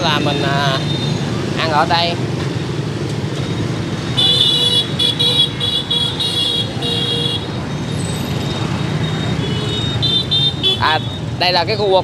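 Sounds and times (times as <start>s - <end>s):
street traffic rumble: 0.0s - 12.0s.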